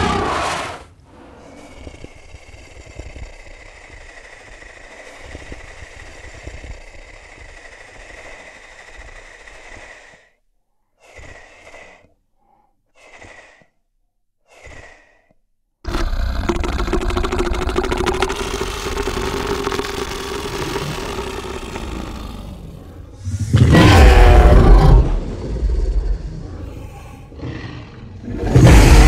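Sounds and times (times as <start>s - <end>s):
raspy creature breathing with whistle: 1.0s - 29.0s.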